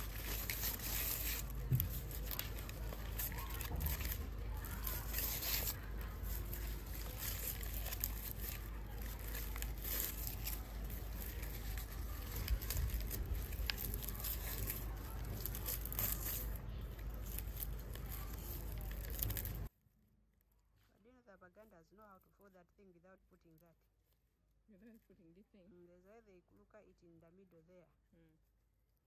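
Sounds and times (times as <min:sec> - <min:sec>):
dry leaves rustling and crackling: 0:00.0 - 0:19.7.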